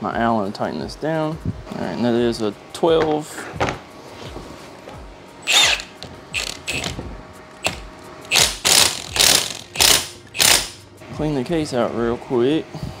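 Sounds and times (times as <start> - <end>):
hand ratchet clicking: 5.4 - 7.0, 7.6 - 10.8.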